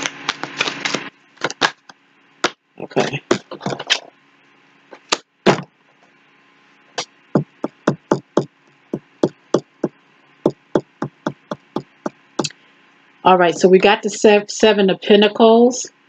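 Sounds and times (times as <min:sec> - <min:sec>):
cards being shuffled and tapped: 0:00.0 - 0:02.6, 0:03.3 - 0:04.1.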